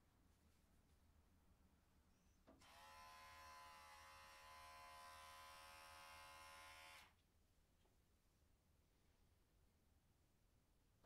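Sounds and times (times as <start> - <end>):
electric hair clipper buzzing: 2.6 - 7.1.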